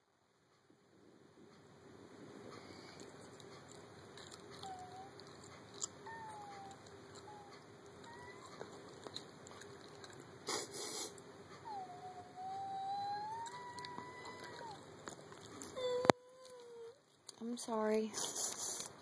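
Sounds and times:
boy whimpering and crying: 4.6 - 5.2, 6.1 - 8.7, 11.6 - 14.8, 15.7 - 17.0.

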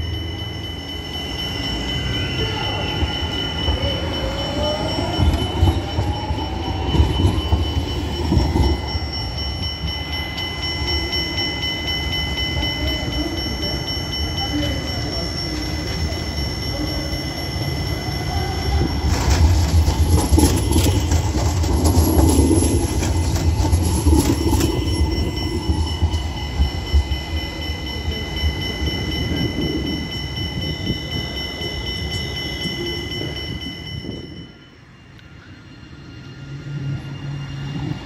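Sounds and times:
high-pitched whine: 0.0 - 38.0
tram rumbling past: 0.0 - 38.0
wheels clacking over rail joints: 18.8 - 26.9.

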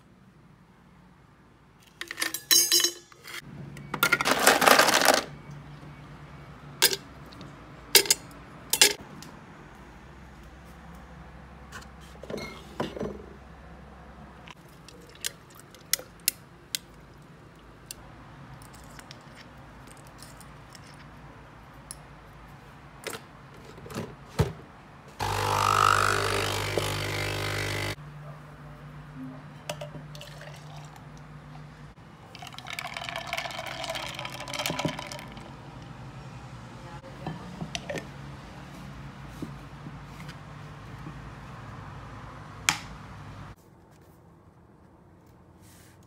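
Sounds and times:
espresso machine pump running: 25.2 - 28.0
ice and cup clinking: 29.7 - 31.0, 32.4 - 35.5
liquid pouring into tumbler: 30.2 - 31.0, 32.3 - 35.6.

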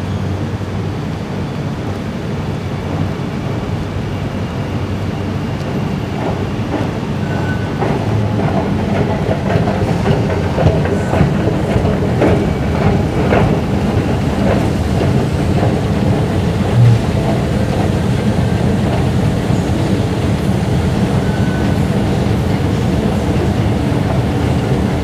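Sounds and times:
escalator mechanical rumble: 7.8 - 25.0
low bump: 16.6 - 17.8.

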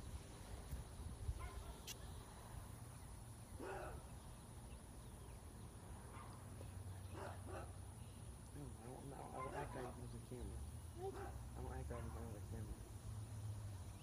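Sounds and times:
wind rumble on microphone: 0.0 - 2.0.

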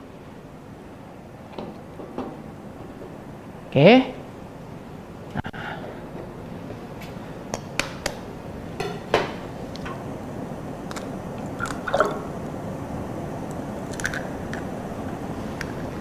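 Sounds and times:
egg cracking clicks and taps: 7.5 - 8.2, 10.8 - 12.0, 13.4 - 14.7.

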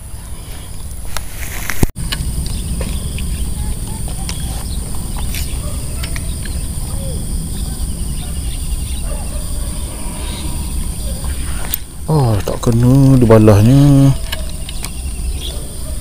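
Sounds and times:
low microphone rumble: 0.0 - 15.9
high-pitched drone: 2.0 - 14.2
faint bird chirps: 2.4 - 16.0
small ticks: 4.0 - 6.6, 14.2 - 15.6.

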